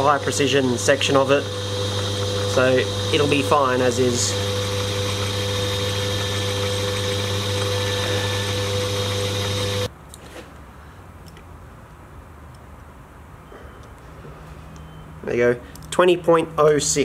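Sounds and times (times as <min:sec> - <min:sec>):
metal lathe motor humming: 0:00.0 - 0:09.9.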